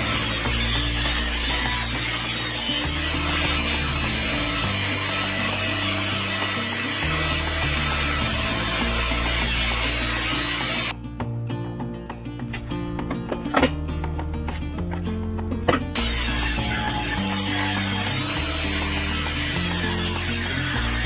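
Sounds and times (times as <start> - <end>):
table saw cutting wood: 0.0 - 10.9, 16.0 - 21.0
background music with bass: 0.0 - 21.0.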